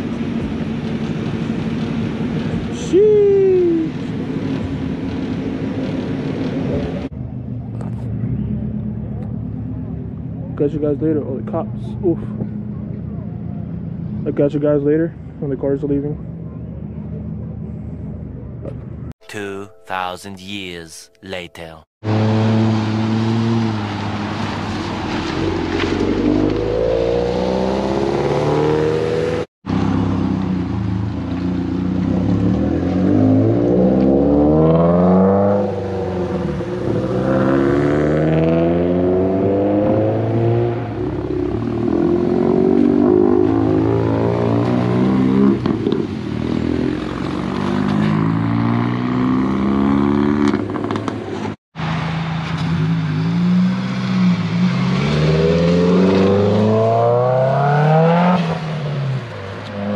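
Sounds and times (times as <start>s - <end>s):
cars accelerating away: 22.1s - 30.1s, 32.0s - 51.0s, 52.6s - 59.9s.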